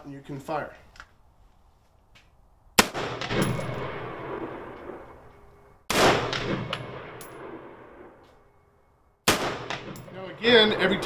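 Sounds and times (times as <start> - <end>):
rifle shots with echo: 2.8 - 5.2, 5.9 - 8.2, 9.2 - 11.0.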